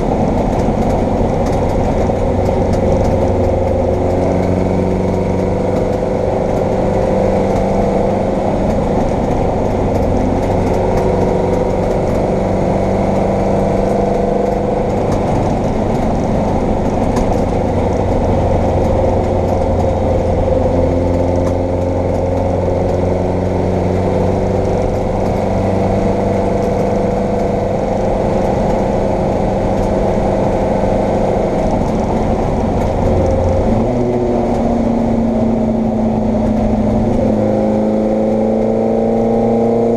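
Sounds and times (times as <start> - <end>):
race car engine under load: 0.0 - 39.9.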